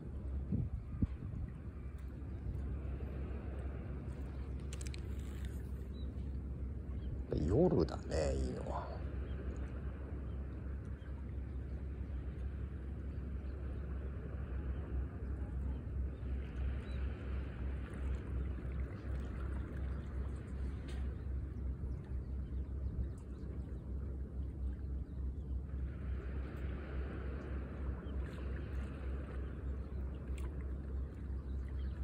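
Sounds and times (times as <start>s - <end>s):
wind buffeting microphone: 0.0s - 5.8s
small waves lapping on concrete: 0.0s - 32.0s.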